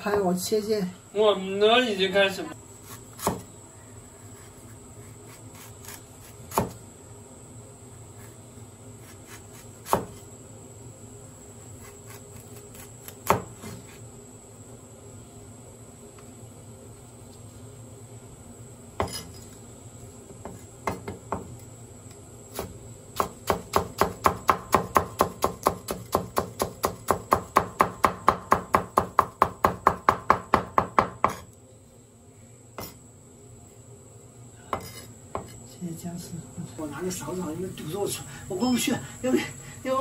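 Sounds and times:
cleaver chopping on wooden board: 0:03.2 - 0:03.4, 0:05.8 - 0:06.8, 0:09.5 - 0:10.2, 0:13.0 - 0:13.5, 0:22.6 - 0:31.4.

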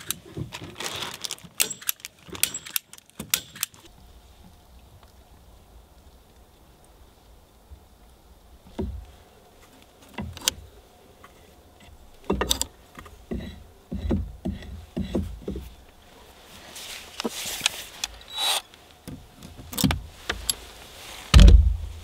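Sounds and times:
knocks and thuds: 0:21.3 - 0:21.9.

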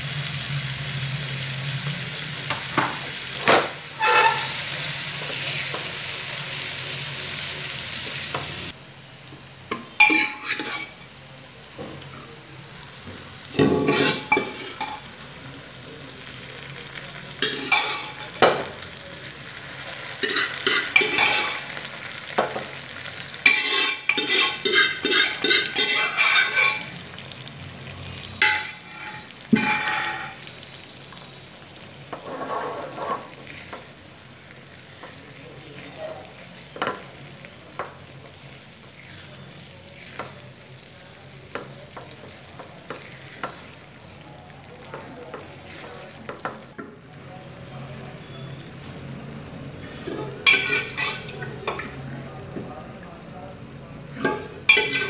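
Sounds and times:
masala sizzling: 0:00.0 - 0:55.0
spoon scraping a frying pan: 0:02.3 - 0:06.8, 0:09.7 - 0:11.2, 0:13.5 - 0:15.1, 0:17.4 - 0:18.9, 0:20.0 - 0:27.3, 0:28.2 - 0:31.2, 0:32.0 - 0:34.0, 0:34.6 - 0:40.4, 0:41.5 - 0:44.0, 0:44.9 - 0:46.7, 0:49.8 - 0:52.1, 0:54.1 - 0:55.0.

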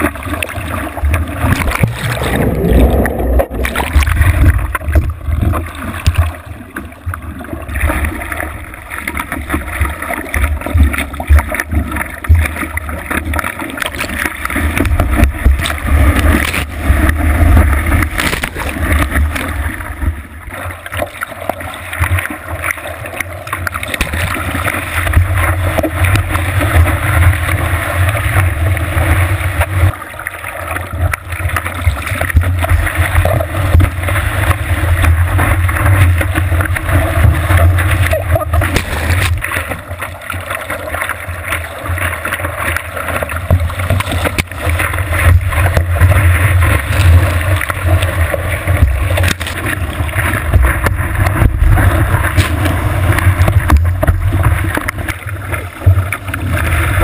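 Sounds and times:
whitewater rushing and splashing: 0:00.0 - 0:57.0.

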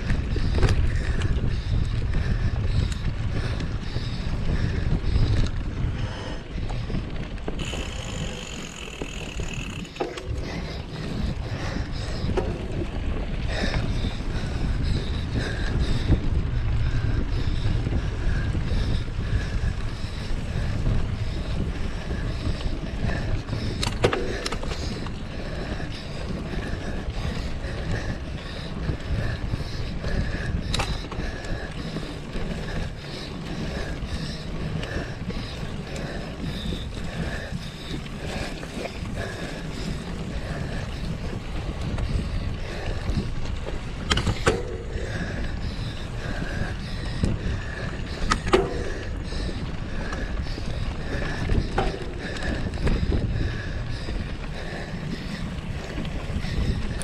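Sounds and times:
bike rolling on trail: 0:00.0 - 0:57.0
wind on microphone: 0:00.0 - 0:57.0.

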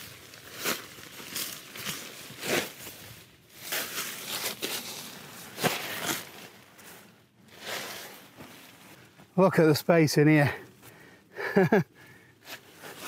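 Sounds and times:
groundsheet crinkling and rustling: 0:00.0 - 0:09.1.

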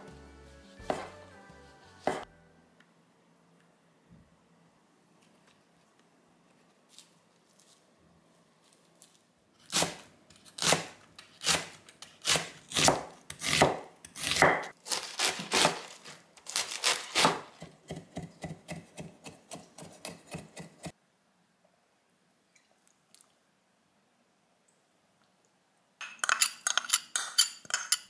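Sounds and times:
knife cutting on wooden board: 0:00.7 - 0:01.1, 0:16.9 - 0:20.9.

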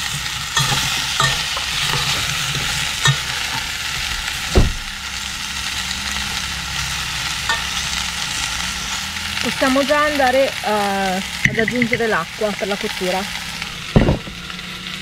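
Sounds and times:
metal spoon scraping pot: 0:00.0 - 0:03.7
food sizzling in oil: 0:00.0 - 0:15.0
low thump: 0:04.5 - 0:04.9.

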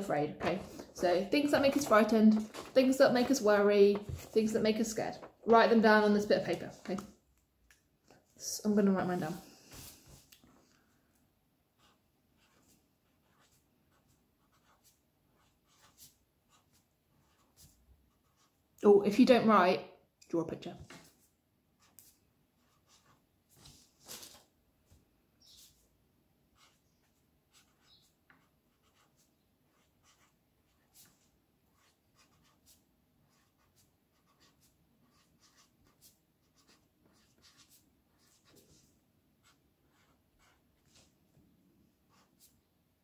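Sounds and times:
pen scratching on paper: 0:11.8 - 0:18.6, 0:21.8 - 0:23.2, 0:26.6 - 0:41.1, 0:42.1 - 0:42.6.

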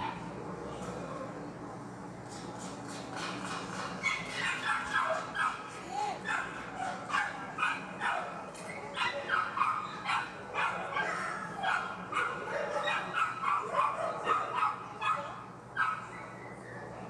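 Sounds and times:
dogs barking and yipping: 0:03.8 - 0:16.4.

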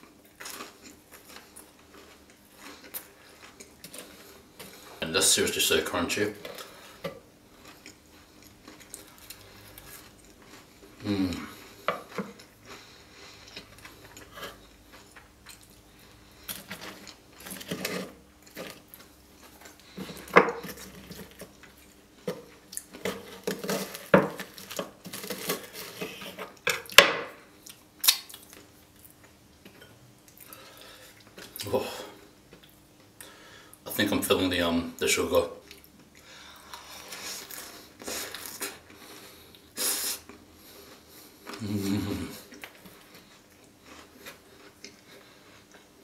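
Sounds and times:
crunchy chewing: 0:00.0 - 0:05.0, 0:06.4 - 0:27.0, 0:35.6 - 0:46.0.

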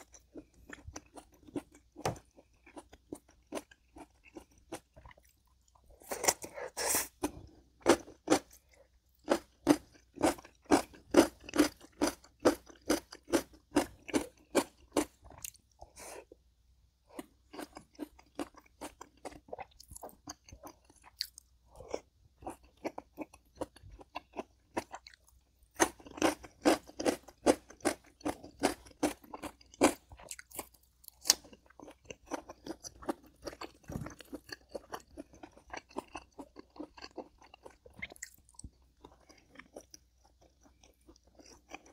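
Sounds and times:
person chewing crunchy food: 0:00.0 - 0:16.4, 0:17.0 - 0:41.9.

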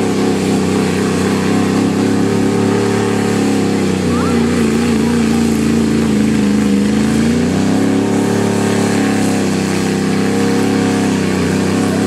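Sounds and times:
truck engine running hard: 0:00.0 - 0:12.0.

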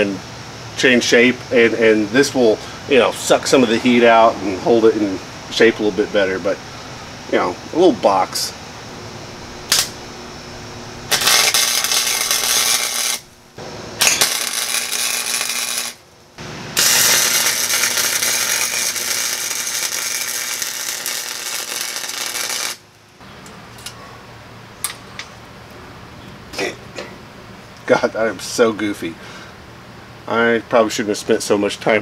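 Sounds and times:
welder arc crackling: 0:06.6 - 0:23.1.

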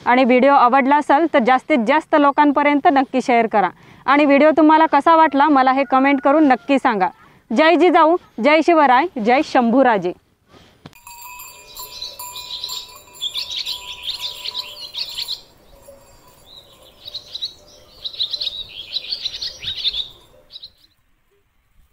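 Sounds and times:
small birds chirping: 0:11.1 - 0:21.0.

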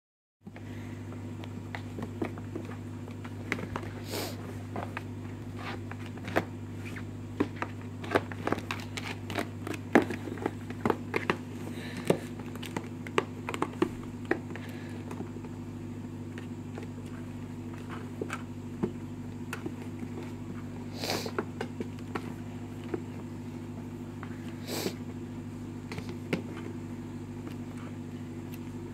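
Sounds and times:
steady low hum: 0:00.4 - 0:28.9
kittens clawing cardboard box: 0:01.6 - 0:15.5.

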